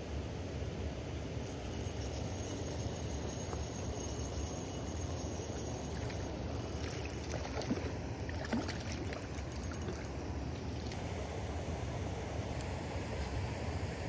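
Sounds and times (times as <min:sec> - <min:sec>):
fish splashing in water: 0:05.6 - 0:11.0.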